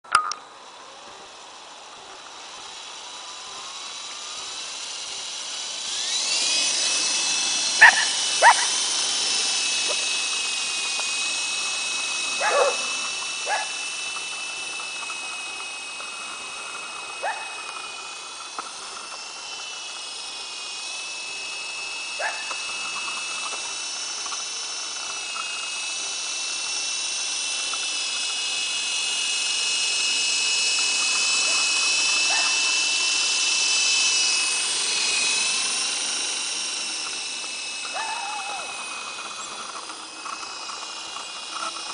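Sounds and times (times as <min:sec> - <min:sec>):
rc helicopter rotor whine: 0:00.0 - 0:41.9
dogs barking: 0:07.8 - 0:08.7, 0:12.4 - 0:13.8, 0:17.2 - 0:17.6, 0:22.2 - 0:22.5, 0:32.3 - 0:32.6.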